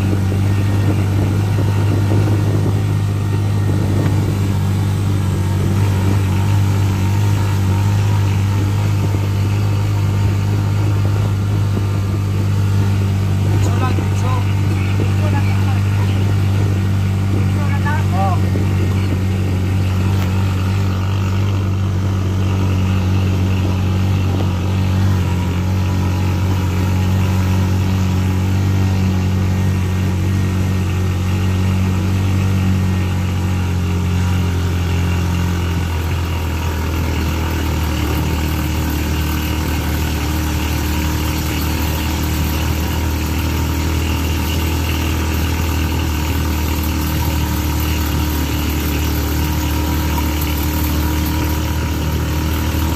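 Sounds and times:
small vehicle engine running: 0.0 - 52.9.

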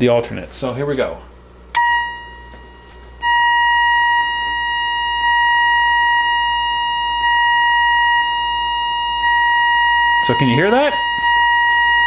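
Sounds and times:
steady beep tone: 1.8 - 12.0.

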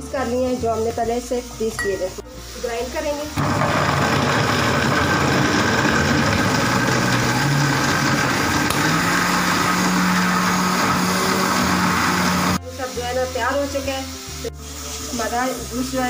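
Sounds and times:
blender motor running: 3.4 - 12.6.

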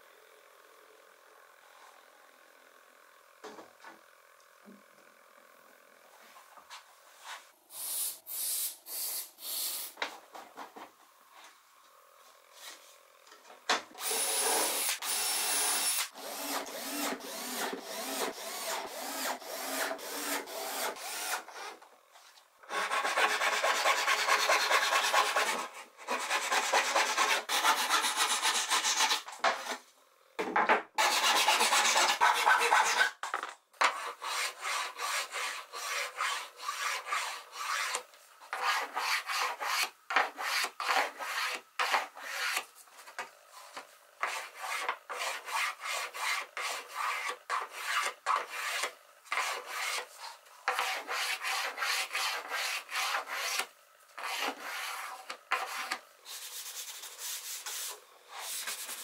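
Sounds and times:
hand saw cutting wood: 14.0 - 21.8, 22.7 - 29.8, 31.0 - 33.2, 33.8 - 42.7, 44.2 - 59.0
sanding block rubbing wood: 22.7 - 29.3, 31.0 - 33.2, 33.9 - 38.0, 38.6 - 42.6, 44.2 - 50.1, 50.7 - 53.6, 54.2 - 59.0.

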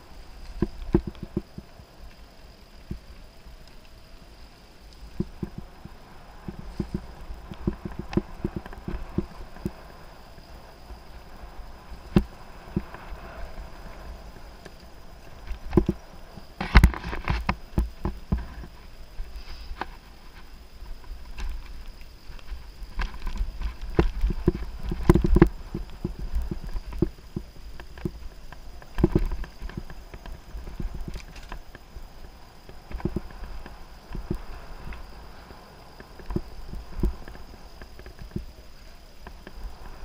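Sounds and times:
mountain bike rattling and knocking: 5.1 - 9.8.

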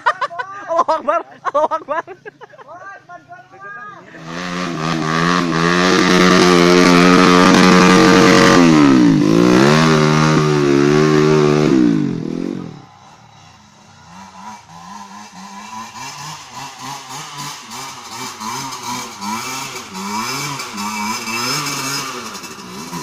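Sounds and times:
faint dirt bike engine revving: 4.0 - 23.0
dirt bike engine revving: 4.1 - 23.0.

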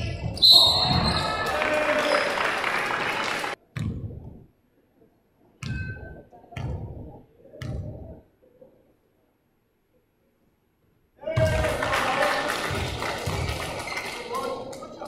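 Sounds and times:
gym crowd noise: 0.0 - 3.6, 11.2 - 15.0.

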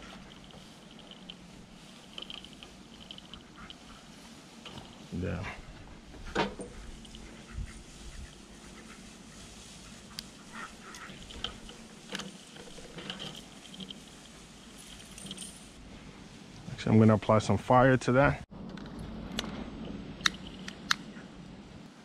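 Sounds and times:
ducks quacking: 7.2 - 11.6.

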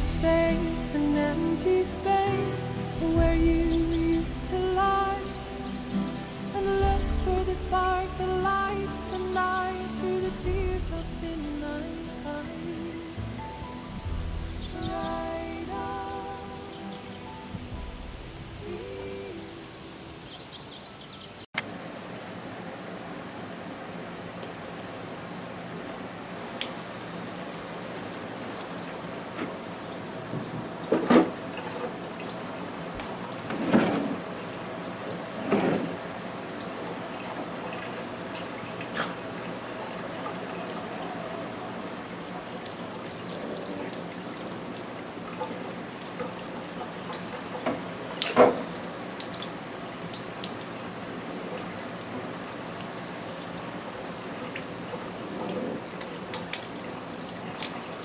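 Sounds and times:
knocks or splashes: 30.2 - 32.0, 33.0 - 34.3, 35.4 - 36.0, 47.5 - 48.9
tap running into sink: 30.3 - 32.0.

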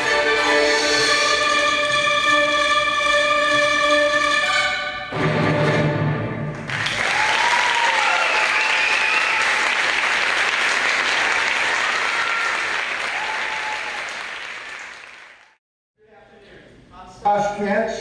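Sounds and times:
audience applauding: 6.5 - 15.6.

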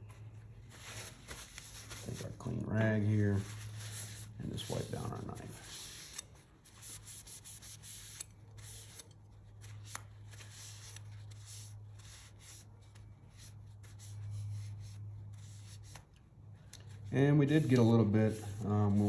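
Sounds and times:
low steady hum: 0.0 - 19.0
cloth rag wiping knife blade: 0.8 - 9.2, 16.9 - 19.0.

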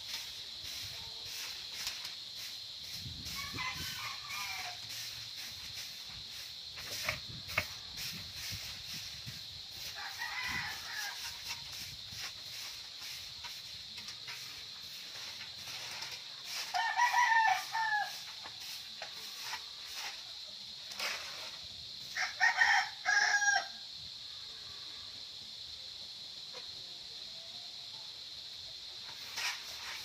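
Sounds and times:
broom sweeping dirt: 0.0 - 23.7, 28.3 - 30.0
rooster crowing: 3.2 - 5.0, 9.8 - 11.6, 16.6 - 18.3, 22.1 - 23.8.

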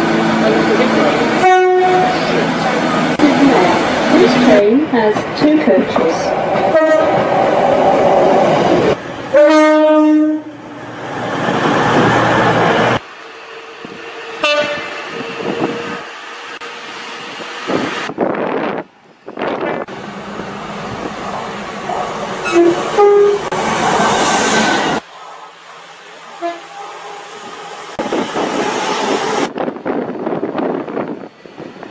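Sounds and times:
trains passing through stations: 0.0 - 31.9
train horn blasts: 1.4 - 2.2, 6.7 - 7.1, 9.3 - 10.6, 14.4 - 15.0, 22.4 - 23.5, 26.4 - 27.2.

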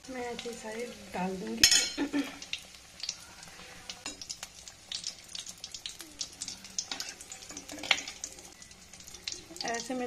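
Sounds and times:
deep-frying sizzle with crackles: 0.0 - 10.0
metal spoon clinking pan: 1.6 - 2.1, 6.6 - 8.3.

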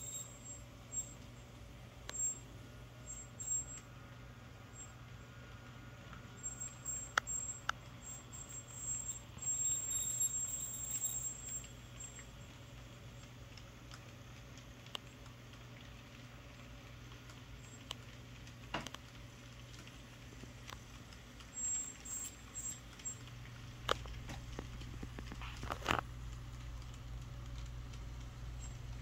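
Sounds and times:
thin high whine: 0.0 - 1.4, 2.0 - 12.4
small wheels clicking over rails: 6.4 - 12.4, 13.2 - 29.0.

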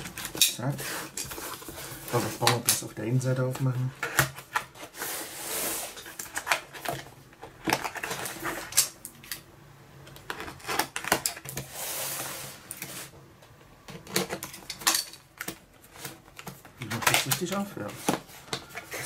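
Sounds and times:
cardboard scraping and rustling: 0.0 - 8.8.

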